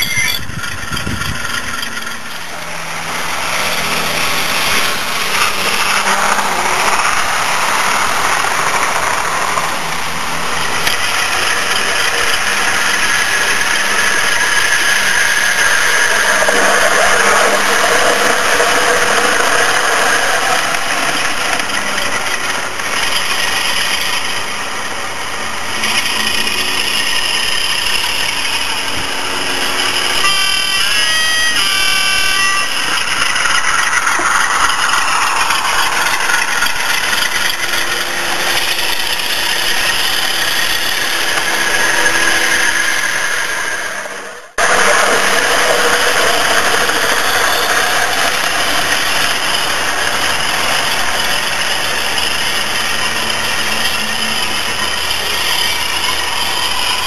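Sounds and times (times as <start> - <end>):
model train running on track: 0.0 - 57.0.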